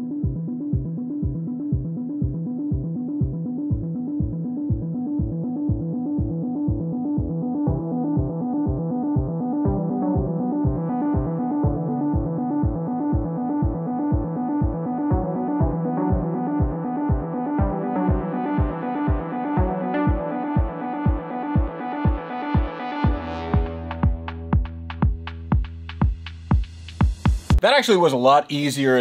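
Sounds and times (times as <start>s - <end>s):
electronic music with synth chords: 0.0s - 27.6s
kick drum beat: 0.2s - 27.6s.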